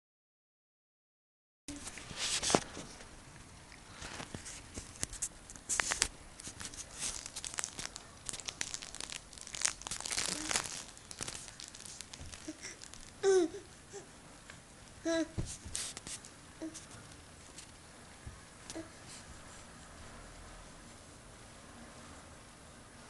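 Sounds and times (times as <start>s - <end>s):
soft toy rustling and crinkling: 1.7s - 3.2s, 3.8s - 13.5s, 15.4s - 18.4s
baby babbling: 12.4s - 14.1s, 15.0s - 15.4s.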